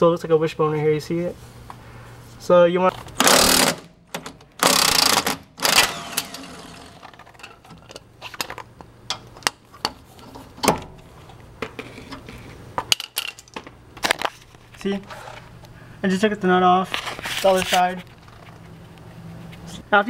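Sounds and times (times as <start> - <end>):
socket ratchet clicking: 3.2 - 6.6.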